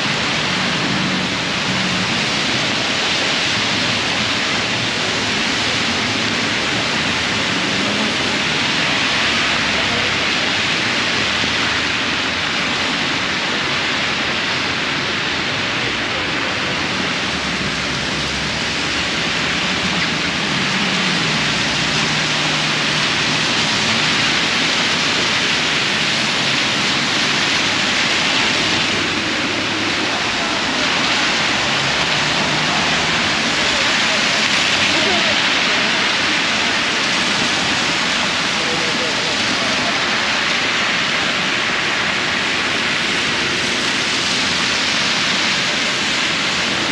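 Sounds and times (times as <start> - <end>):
heavy rain on an umbrella: 0.0 - 46.9.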